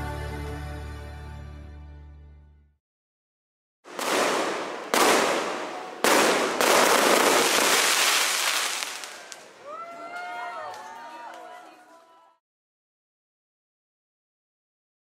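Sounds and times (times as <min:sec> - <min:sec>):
firework bursts: 0:03.9 - 0:09.6
crackling hiss of fireworks: 0:03.9 - 0:09.9.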